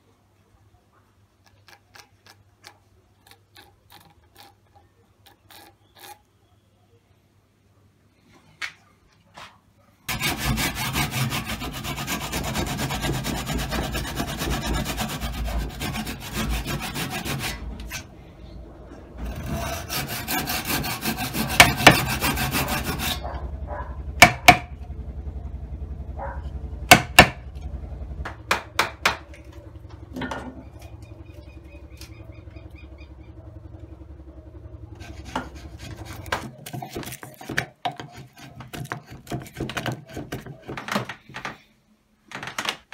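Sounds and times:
chisel paring wood: 10.1s - 17.5s, 19.2s - 23.2s, 24.2s - 24.7s, 26.9s - 27.4s, 35.1s - 41.6s
sawing strokes on wood: 10.1s - 18.1s, 19.2s - 23.4s, 34.9s - 40.8s.

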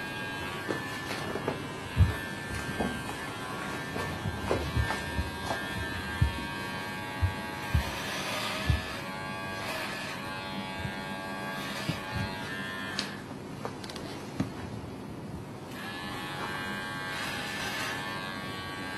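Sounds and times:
electric hair clipper buzzing: 0.0s - 13.3s, 15.7s - 18.9s
short low thumps: 4.0s - 9.1s.

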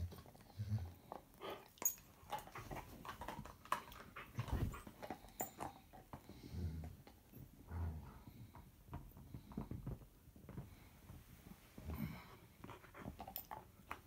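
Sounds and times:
dogs rustling and scuffling: 1.8s - 5.6s.

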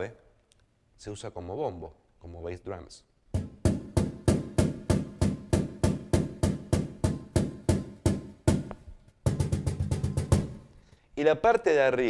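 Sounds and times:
cajon struck by hand: 3.4s - 10.7s.

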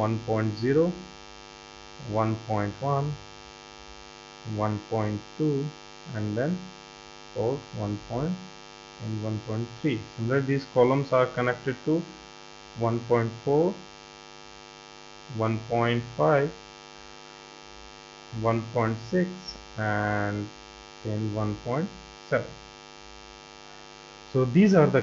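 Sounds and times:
person speaking short phrases: 0.0s - 1.0s, 2.0s - 3.2s, 4.5s - 6.6s, 7.4s - 8.4s, 9.0s - 12.2s, 12.8s - 13.8s, 15.3s - 16.6s, 18.4s - 20.5s, 21.1s - 22.6s, 24.3s - 25.0s
electrical mains hum: 0.0s - 25.0s.

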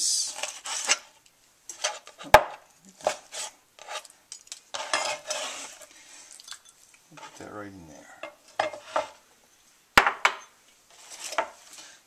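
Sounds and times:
knife scraping cutting board: 3.0s - 4.1s, 4.7s - 5.9s, 8.6s - 9.2s, 10.9s - 11.8s.

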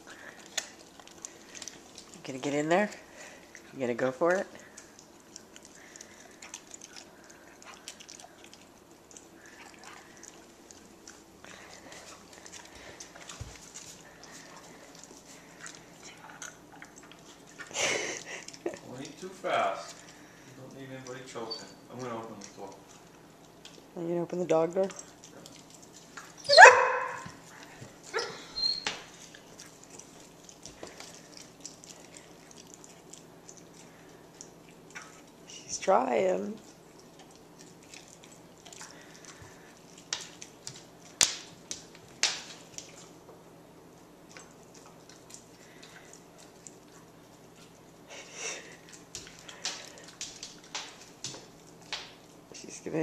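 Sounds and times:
dog chewing a treat: 0.0s - 24.0s, 24.8s - 53.0s
dog barking: 26.5s - 27.4s.

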